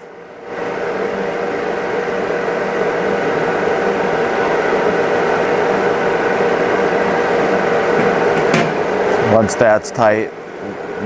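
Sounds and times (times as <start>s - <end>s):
machinery running hum: 0.0s - 11.0s
steady machine whine: 0.0s - 11.0s.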